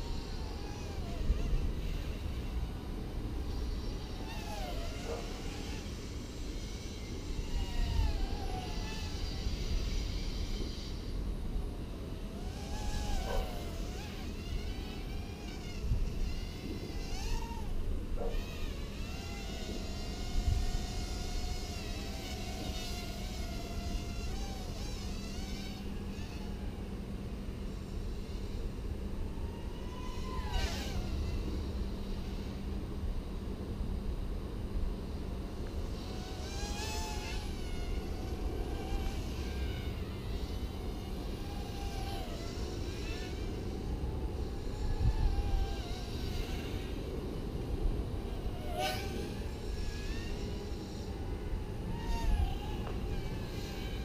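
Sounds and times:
drone motors whining: 0:00.0 - 0:54.0.

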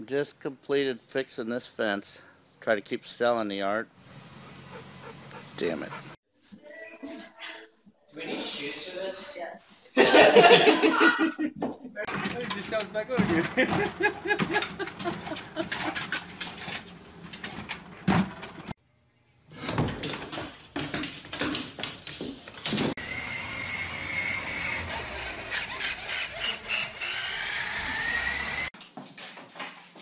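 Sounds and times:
knocks and clatter: 0:11.6 - 0:16.8
toy truck electric motor whining: 0:23.0 - 0:28.7.

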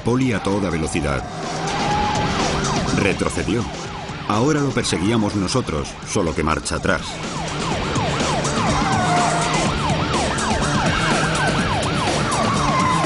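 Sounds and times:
background music: 0:00.0 - 0:13.0
police siren yelping: 0:00.0 - 0:13.0.

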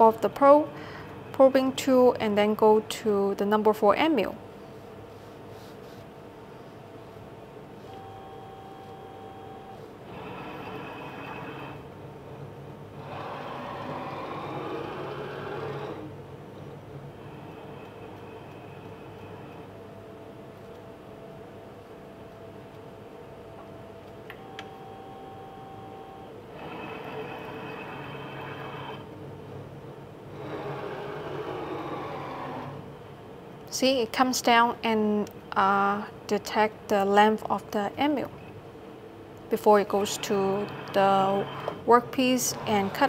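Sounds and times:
steady machine hum: 0:00.0 - 0:43.0
cnc axis motors driving: 0:07.8 - 0:21.5, 0:22.3 - 0:33.3, 0:39.5 - 0:43.0
high motor whine: 0:23.8 - 0:29.2, 0:39.7 - 0:43.0.

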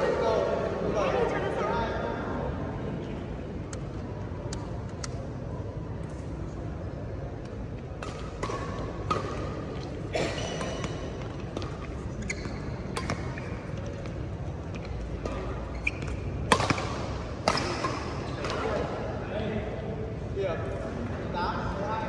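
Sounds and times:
racket hitting shuttlecock: 0:07.9 - 0:12.0, 0:12.8 - 0:14.1, 0:14.8 - 0:18.9
sneakers squeaking on court: 0:08.0 - 0:18.7.

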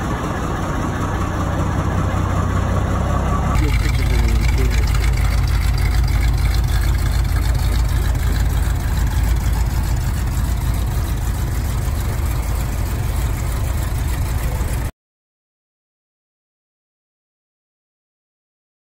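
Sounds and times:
car engine idling: 0:00.0 - 0:14.9.

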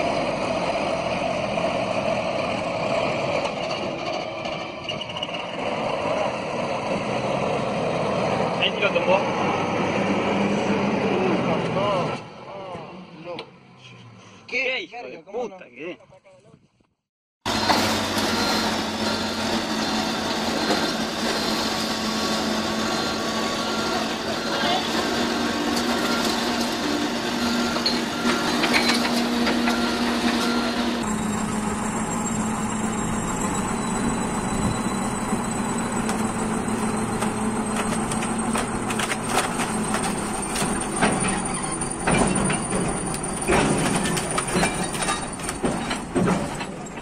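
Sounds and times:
backhoe engine humming: 0:00.0 - 0:11.7, 0:17.5 - 0:47.0
bulldozer engine whining: 0:00.0 - 0:12.4, 0:17.5 - 0:47.0
metallic clanks from steel tracks: 0:17.5 - 0:47.0.

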